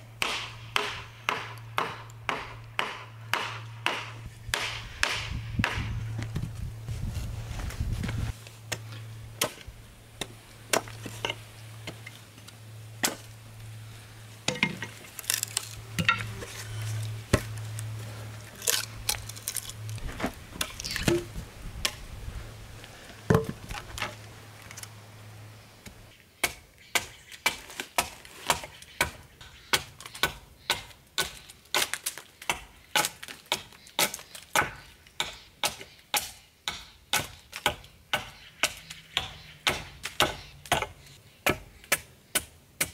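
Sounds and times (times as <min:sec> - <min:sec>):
low hum: 0:00.0 - 0:26.1
axe blows splitting wood: 0:00.2 - 0:06.0
hatchet chopping wood: 0:00.2 - 0:06.0, 0:10.2 - 0:12.0, 0:26.4 - 0:42.9.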